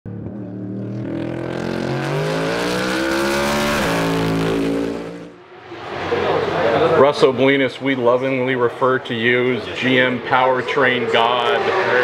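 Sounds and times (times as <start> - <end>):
race car engine revving: 0.1 - 6.7.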